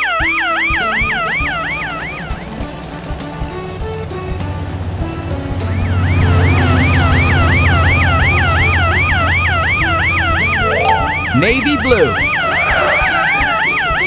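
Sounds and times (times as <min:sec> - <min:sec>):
children's background music: 0:09.9 - 0:14.0.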